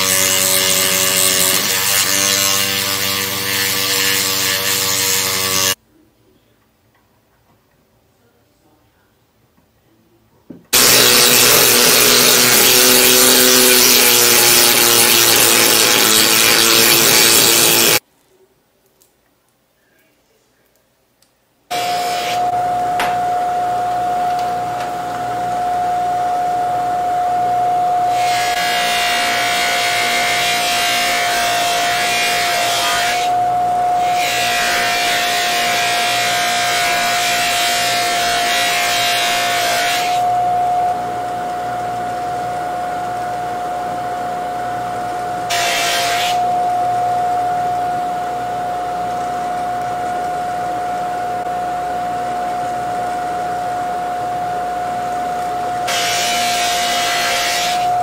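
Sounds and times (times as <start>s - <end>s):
bench buffer whining: 21.7s - 30.2s, 31.9s - 36.1s, 40.1s - 58.0s.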